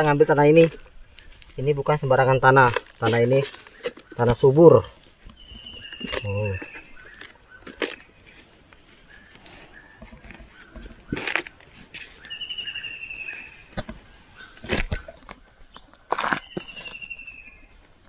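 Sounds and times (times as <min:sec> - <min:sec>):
high insect buzz: 0:00.0 - 0:15.2
digging tool striking earth: 0:09.9 - 0:15.2.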